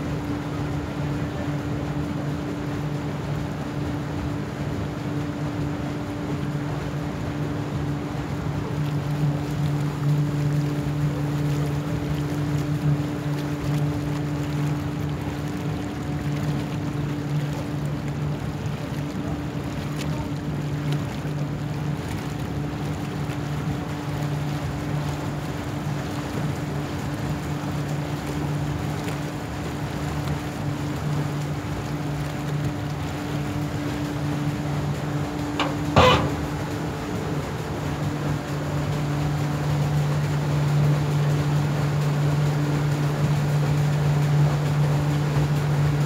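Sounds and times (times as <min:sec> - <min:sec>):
boat engine humming: 0:00.0 - 0:46.0
water rushing along a hull: 0:00.0 - 0:46.0
loud knock or clatter: 0:35.6 - 0:36.6.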